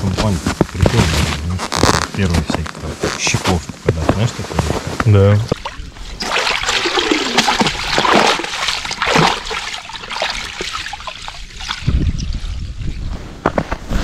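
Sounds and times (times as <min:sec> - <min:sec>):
water splashing and sloshing: 0:03.2 - 0:13.0.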